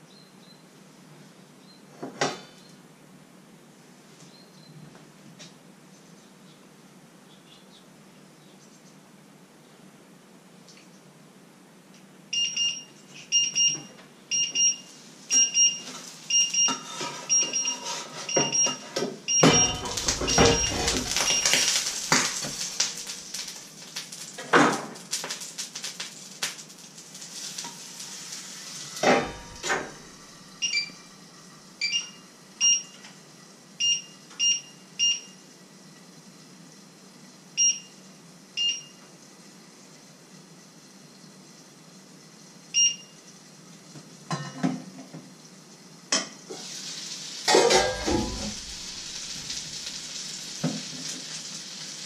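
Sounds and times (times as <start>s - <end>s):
pots and dishes clattering: 15.8s - 23.6s, 29.0s - 30.2s, 44.3s - 45.0s, 47.4s - 49.8s
short high-pitched electronic beeps: 19.3s - 22.0s.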